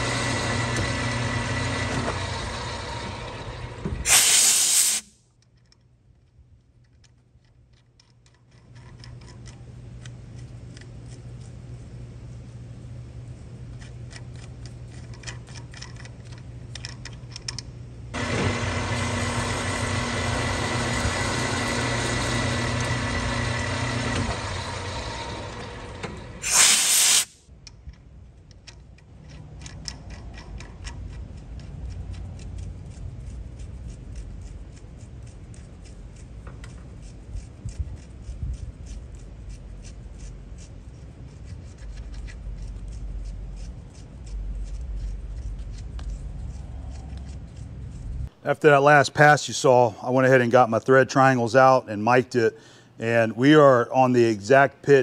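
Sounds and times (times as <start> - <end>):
machine motor running: 0.0 - 4.1, 18.2 - 26.6
low shop hum: 0.0 - 55.0
sharp loud hiss: 4.0 - 5.2, 26.4 - 27.4.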